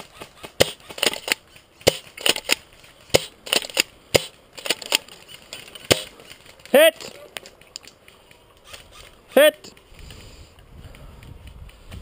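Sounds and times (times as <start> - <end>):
twigs snapping and crunching: 4.6 - 10.0.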